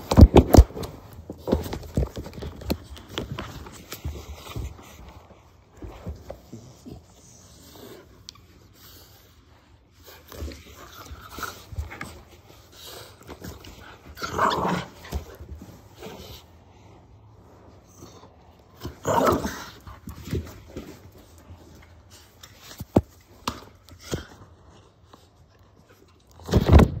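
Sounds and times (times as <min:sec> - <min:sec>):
puppy growling in play: 0:10.3 - 0:16.7, 0:17.8 - 0:20.9.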